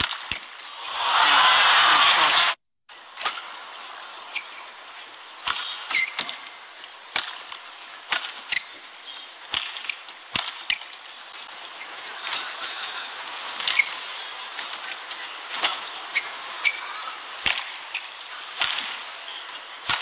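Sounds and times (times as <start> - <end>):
rackets striking shuttlecock: 0.0 - 0.6, 5.4 - 11.0, 17.4 - 19.0
steady arena hum: 0.1 - 20.0
shoe squeaks on floor: 5.9 - 6.3.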